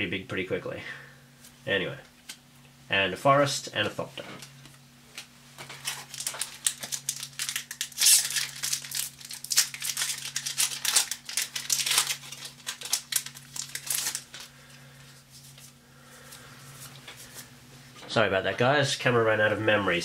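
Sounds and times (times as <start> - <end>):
foil wrapper crinkling: 5.6 - 15.7.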